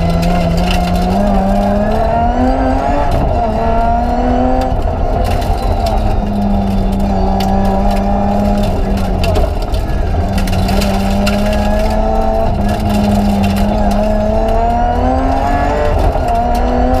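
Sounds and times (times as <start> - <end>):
rally car engine running hard: 0.0 - 17.0
sharp ticks and clicks: 4.5 - 17.0.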